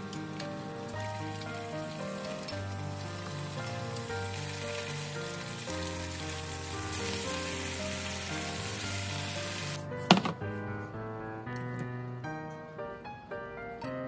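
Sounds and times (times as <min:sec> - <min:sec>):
food sizzling in a frying pan: 0:00.0 - 0:09.8
background music: 0:00.0 - 0:14.0.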